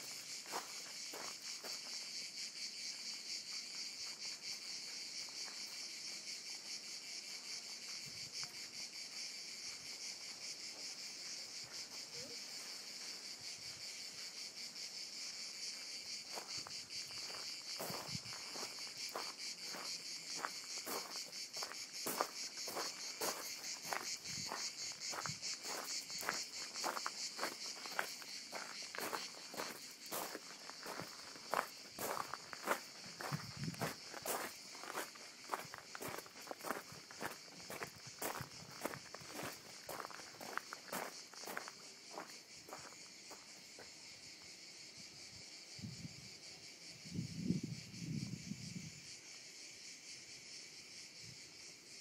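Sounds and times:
footsteps on gravel: 0:00.0 - 0:02.0, 0:16.3 - 0:43.9
high-pitched insect chorus: 0:00.0 - 0:52.0.

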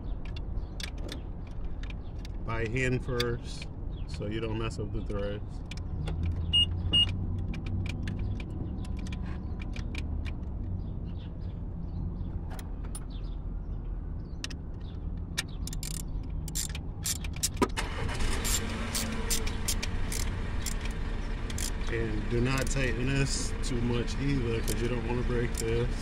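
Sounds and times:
screwdriver clicks and ticks: 0:15.4 - 0:17.6, 0:18.5 - 0:21.8, 0:24.6 - 0:24.9.

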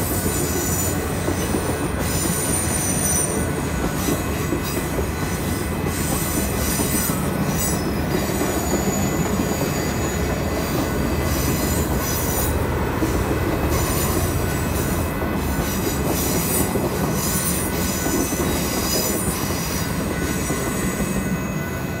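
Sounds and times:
train wheels rumbling on rails: 0:00.0 - 0:22.0.

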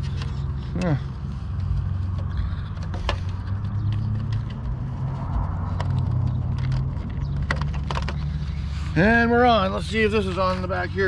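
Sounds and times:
steady low rumble: 0:00.0 - 0:07.7.

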